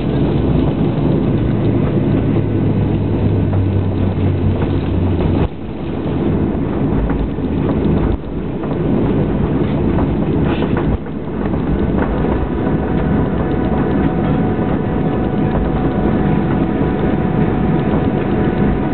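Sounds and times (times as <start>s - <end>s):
jet engine rush: 0.0s - 18.9s
faint steady whine: 10.4s - 18.9s.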